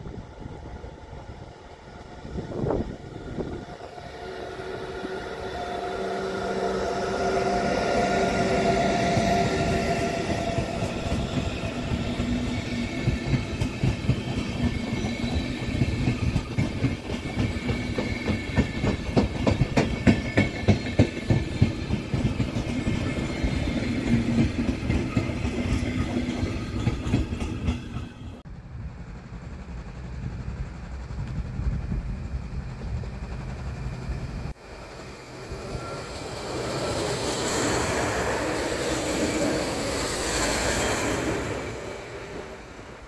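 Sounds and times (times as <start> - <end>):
train wheels clicking over rail joints: 10.4 - 28.4.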